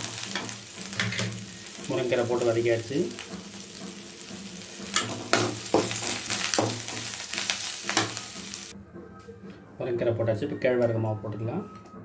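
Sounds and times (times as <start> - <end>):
metal spatula scraping pan: 0.0 - 8.7
vegetables sizzling in oil: 0.0 - 8.8.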